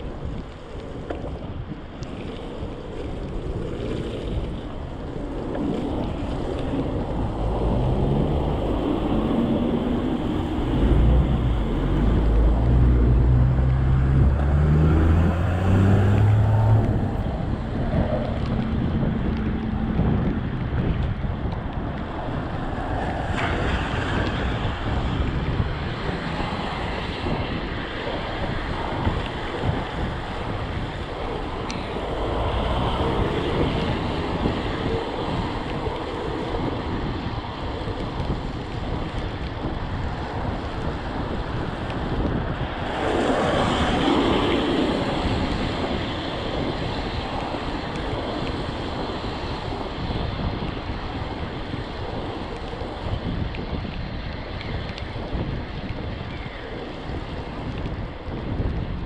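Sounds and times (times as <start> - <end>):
wind rushing over microphone: 0.0 - 59.0
tyres hissing on wet road: 5.8 - 18.4, 22.4 - 37.8, 40.1 - 53.2.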